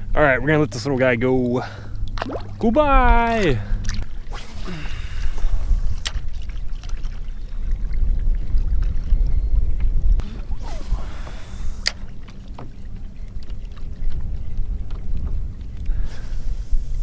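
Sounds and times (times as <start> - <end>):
wind rumbling on microphone: 0.0 - 17.0
fishing rod swish: 4.3 - 6.3, 10.2 - 12.1.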